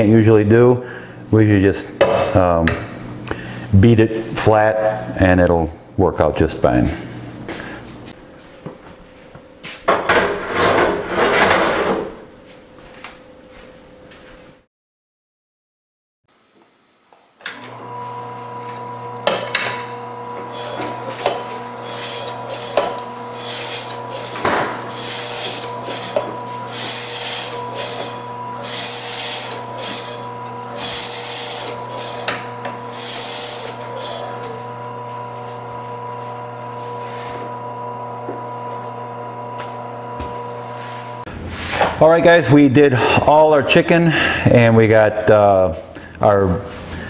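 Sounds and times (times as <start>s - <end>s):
meat slicer motor hum: 17.4s - 42.0s
blade rasping through meat: 20.4s - 34.6s.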